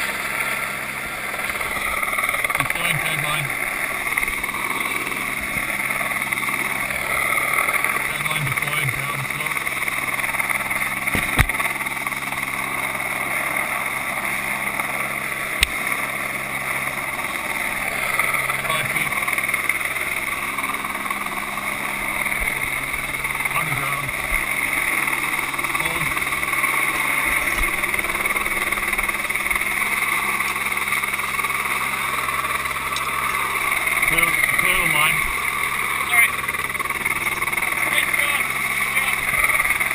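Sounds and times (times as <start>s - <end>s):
helicopter engine and rotor drone: 0.0s - 39.9s.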